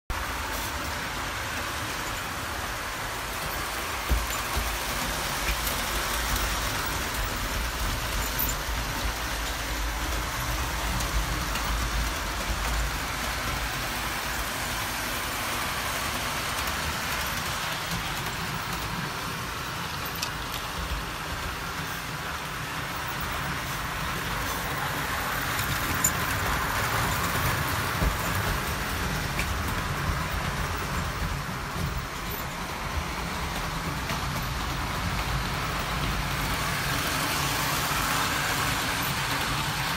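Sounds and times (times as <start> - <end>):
model train motors whirring: 0.2 - 39.9.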